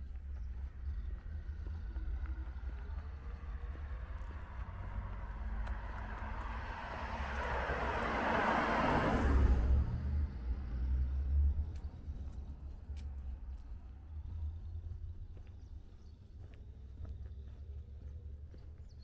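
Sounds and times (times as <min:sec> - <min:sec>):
car passing by: 0:02.0 - 0:13.0.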